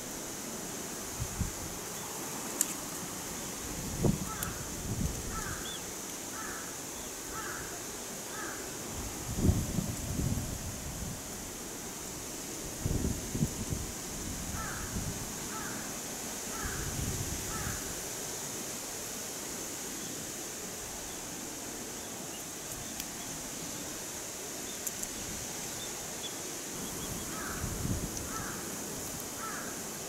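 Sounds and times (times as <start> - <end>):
steady high hiss: 0.0 - 30.0
faint bird calls: 5.3 - 8.8, 16.5 - 16.9, 17.5 - 17.9, 25.7 - 27.7, 28.3 - 28.7, 29.4 - 29.9.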